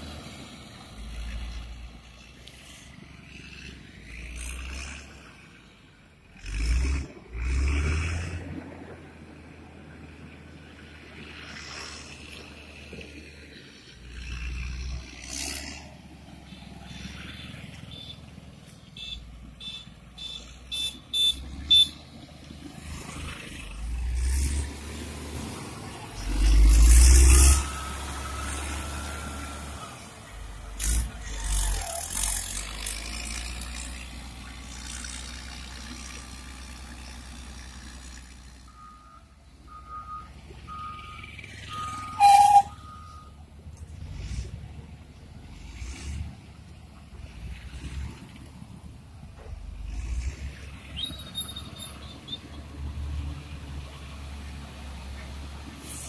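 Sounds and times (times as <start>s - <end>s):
motor grader engine running: 0.0s - 56.0s
reversing alarm beeping: 19.0s - 22.0s, 38.7s - 43.4s.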